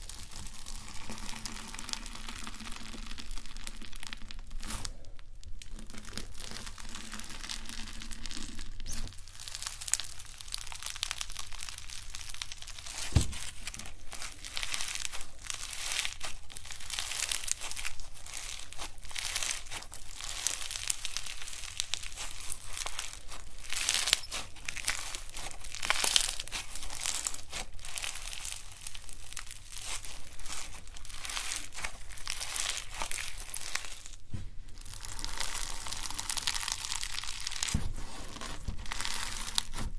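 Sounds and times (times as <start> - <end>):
slime crunching and crackling: 0.0 - 39.9
thump: 13.0 - 13.5.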